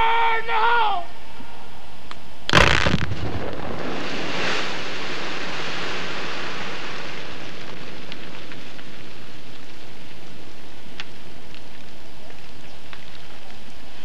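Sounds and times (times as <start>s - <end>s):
small stones landing: 2.5s - 10.3s
rock debris raining down: 2.5s - 14.0s.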